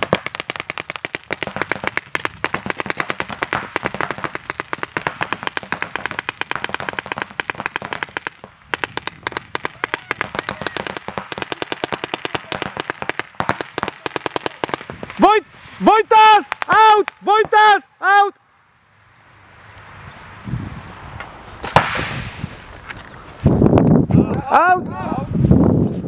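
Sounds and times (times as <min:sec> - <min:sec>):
paintball markers firing rapidly: 0:00.0 - 0:15.2, 0:16.4 - 0:17.2.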